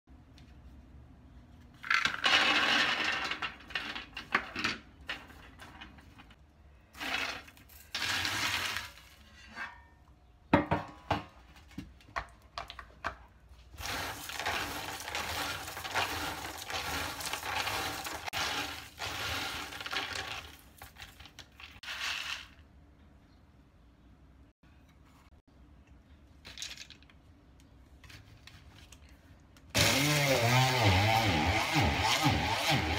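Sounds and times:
peanuts rattling on metal tray: 1.8 - 6.3, 7.0 - 9.3, 13.8 - 22.6
peanuts shaken in plastic colander: 7.0 - 9.1, 13.8 - 22.6.

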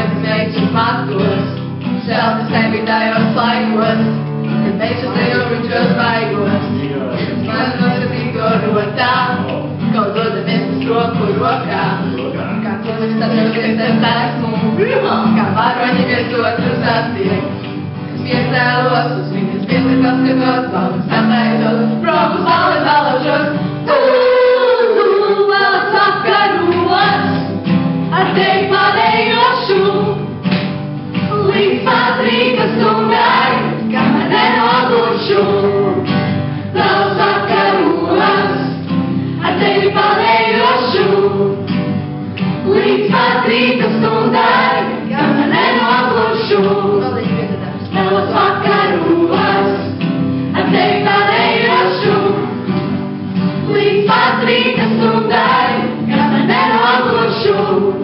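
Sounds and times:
group singing in harmony: 0.0 - 58.0
strummed acoustic guitar: 0.0 - 58.0.

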